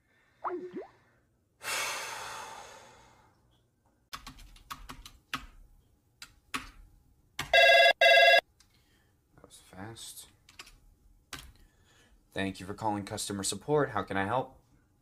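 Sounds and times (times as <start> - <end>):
phone ringtone: 7.6 - 8.4.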